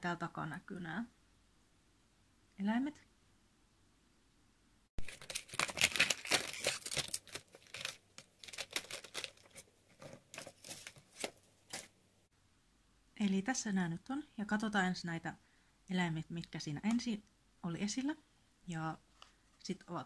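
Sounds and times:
packaging tearing and crinkling: 0:05.0 - 0:11.9.

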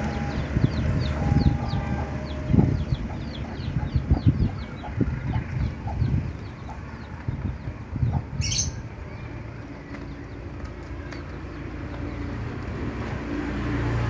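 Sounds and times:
chickens clucking: 0:00.7 - 0:08.5.

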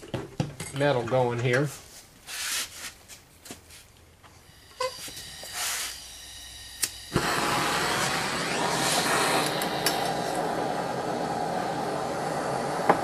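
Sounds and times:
torch flame hissing: 0:04.4 - 0:13.0
torch igniter click: 0:06.8 - 0:13.0.

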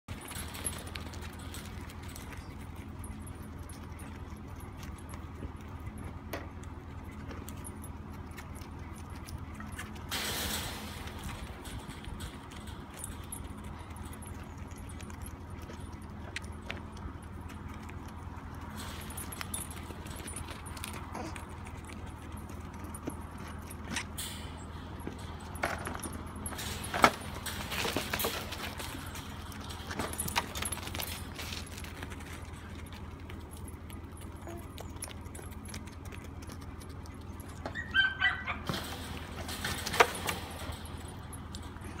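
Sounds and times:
dog barking: 0:38.0 - 0:38.7
animals knocking in pen: 0:38.6 - 0:41.7.

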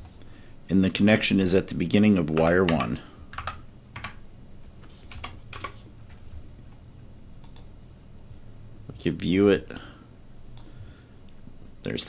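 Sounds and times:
faint low hum: 0:00.0 - 0:12.0
keyboard and mouse clicks: 0:02.3 - 0:04.2, 0:05.1 - 0:05.8, 0:07.4 - 0:07.7.

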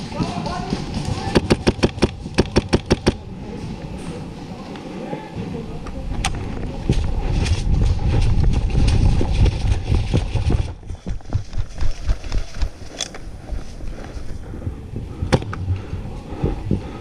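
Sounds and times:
camera handling rumble and knocks: 0:06.1 - 0:14.4, 0:15.2 - 0:15.7
separate thumps: 0:14.7 - 0:17.0.

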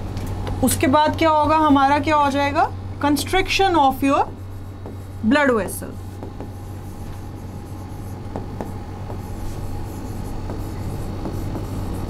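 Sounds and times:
pen scratching on board: 0:04.0 - 0:12.0.

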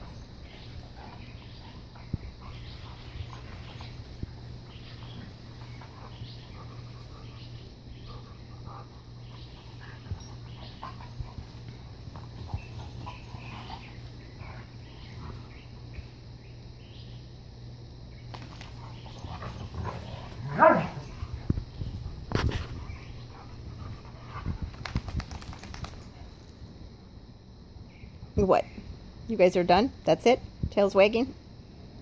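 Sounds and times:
dogs scuffling: 0:00.0 - 0:07.4, 0:09.2 - 0:15.9, 0:18.3 - 0:26.6.

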